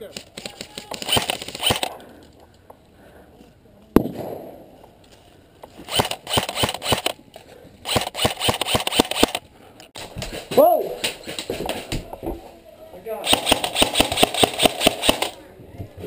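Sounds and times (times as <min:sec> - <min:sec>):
airsoft gun shots: 0:00.1 - 0:01.9, 0:13.2 - 0:15.4.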